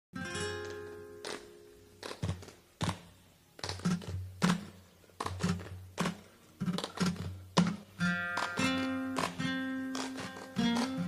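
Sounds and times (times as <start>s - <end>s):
strummed guitar chords: 0.2s - 2.4s, 5.4s - 11.0s
percussive taps and low thumps: 2.1s - 9.5s.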